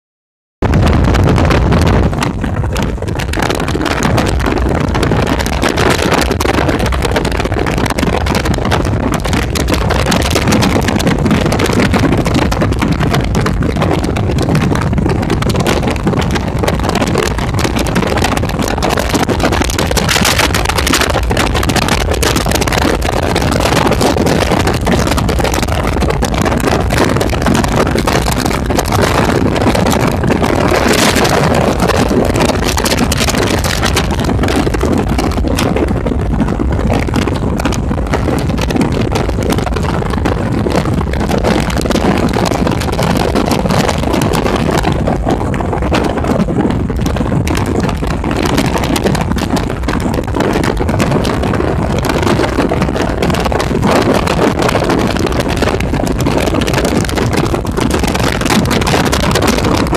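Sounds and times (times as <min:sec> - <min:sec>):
car road noise: 0:00.6 - 0:59.9
rushing wind: 0:00.6 - 0:59.9.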